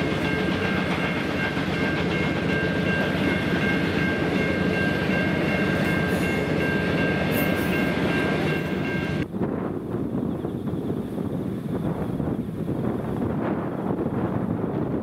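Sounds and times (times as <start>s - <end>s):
steady high-pitched ring: 0.0s - 9.2s
railway carriages rolling on rails: 0.0s - 15.0s
wind buffeting microphone: 0.0s - 15.0s.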